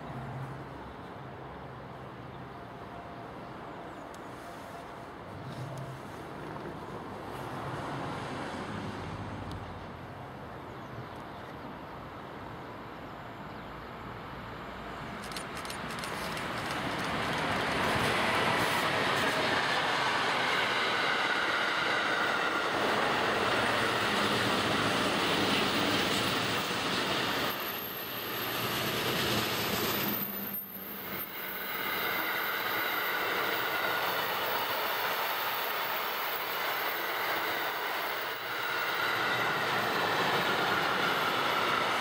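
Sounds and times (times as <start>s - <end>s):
train wheels rumbling on rail: 15.0s - 42.0s.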